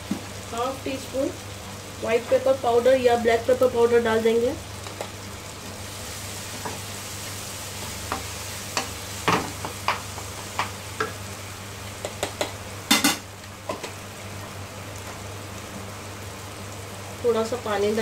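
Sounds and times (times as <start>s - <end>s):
food sizzling: 0.0s - 18.0s
spatula knocking and scraping pan: 7.8s - 11.2s.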